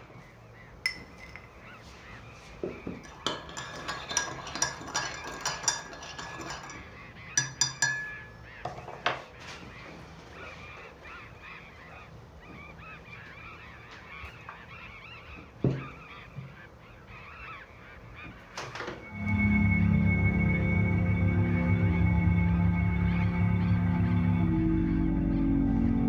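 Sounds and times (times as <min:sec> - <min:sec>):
spoon tapping mug rim: 0:00.9 - 0:01.4, 0:07.4 - 0:08.3
spoon clinking in ceramic mug: 0:00.9 - 0:01.5, 0:03.0 - 0:06.8, 0:07.4 - 0:08.3.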